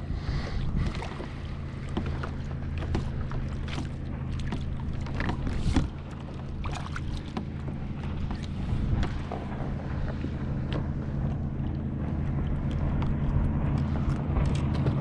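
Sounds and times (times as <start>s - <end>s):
steady low hum: 0.0s - 15.0s
knocks and clicks against hull: 0.7s - 15.0s.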